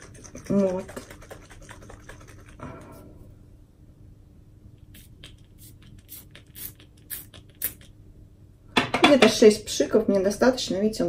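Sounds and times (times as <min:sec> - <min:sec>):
pump spray bottle spritzes: 0:04.9 - 0:07.9.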